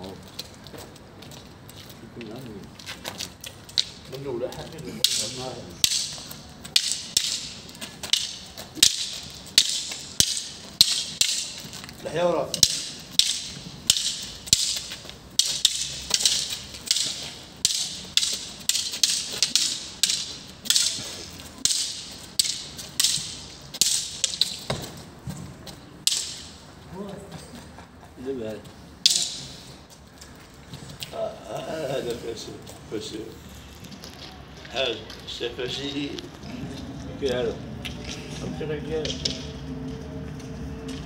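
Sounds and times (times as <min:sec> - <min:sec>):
wooden sticks clacking: 0:02.8 - 0:25.1, 0:25.7 - 0:26.8, 0:29.0 - 0:32.2, 0:39.0 - 0:39.6
sticks swishing and scuffing: 0:04.8 - 0:26.7.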